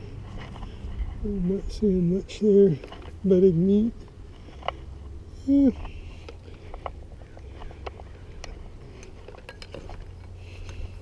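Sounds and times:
low steady rumble: 0:00.0 - 0:11.0
metallic clinks of handling: 0:05.8 - 0:10.8.

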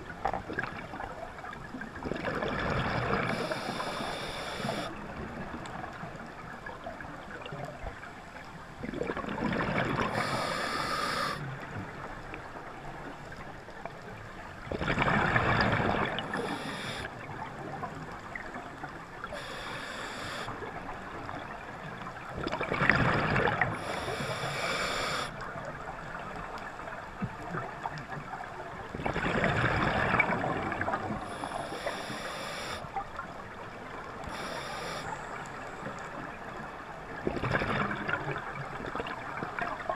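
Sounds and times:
air bubbles rushing underwater: 0:00.3 - 0:03.4, 0:08.8 - 0:10.3, 0:14.7 - 0:16.4, 0:22.3 - 0:23.9, 0:29.0 - 0:31.3, 0:37.2 - 0:39.9
underwater hiss: 0:03.0 - 0:05.0, 0:10.0 - 0:11.5, 0:16.0 - 0:17.2, 0:19.2 - 0:20.7, 0:23.6 - 0:25.4, 0:30.6 - 0:33.0, 0:34.2 - 0:35.6.

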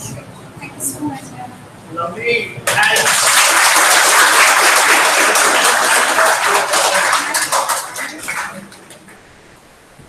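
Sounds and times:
hands clapping in applause: 0:02.6 - 0:09.2.

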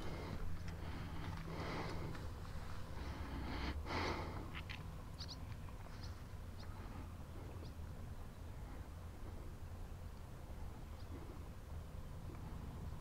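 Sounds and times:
breathy rush of noise: 0:00.0 - 0:05.2
steady low rumble: 0:00.0 - 0:13.0.

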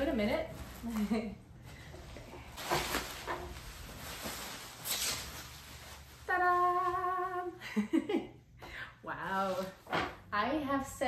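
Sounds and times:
plastic wrapping crinkling: 0:02.4 - 0:07.5.

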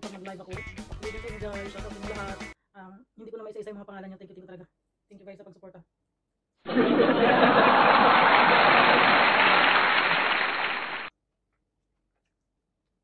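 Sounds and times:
dense applause: 0:06.7 - 0:11.1.

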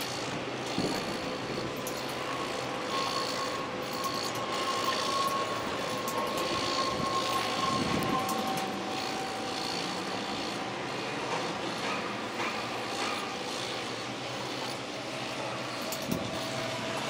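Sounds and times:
diesel machinery running: 0:00.0 - 0:17.0
steady whine: 0:00.0 - 0:17.0.

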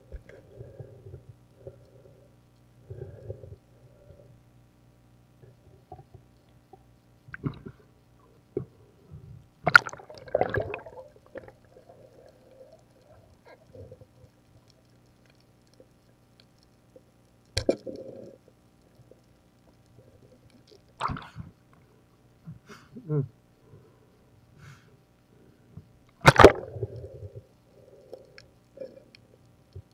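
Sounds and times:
faint steady hum: 0:00.0 - 0:29.9
underwater knocks and gurgling: 0:08.6 - 0:14.4.

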